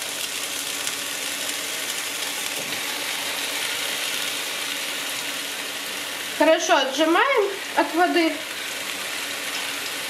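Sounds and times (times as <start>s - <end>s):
oil sizzling in frying pan: 0.0s - 10.0s.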